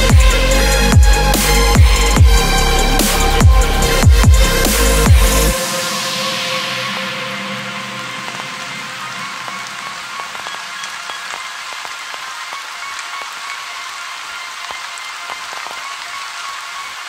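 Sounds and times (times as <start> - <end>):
steady rain falling: 0.0 - 17.0
raindrop ticks: 8.2 - 16.8.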